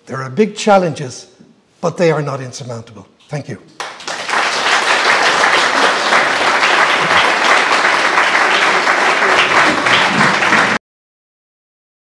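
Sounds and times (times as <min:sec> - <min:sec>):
audience applauding: 0:03.8 - 0:10.8.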